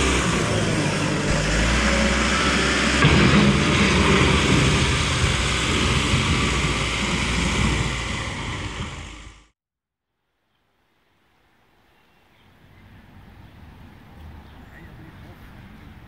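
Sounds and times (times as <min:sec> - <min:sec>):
wheel loader driving away: 0:00.0 - 0:09.6.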